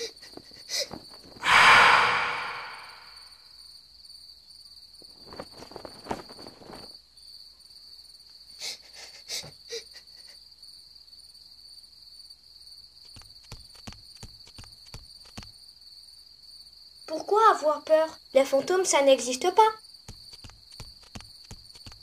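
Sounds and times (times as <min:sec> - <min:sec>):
crickets chirping: 0:00.0 - 0:22.0.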